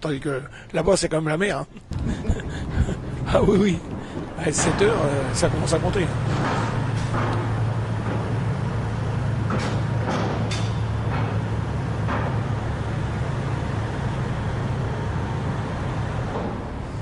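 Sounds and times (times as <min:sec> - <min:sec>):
low engine drone: 0:01.6 - 0:17.0
short knocks and clanks: 0:01.9 - 0:12.9, 0:16.2 - 0:17.0.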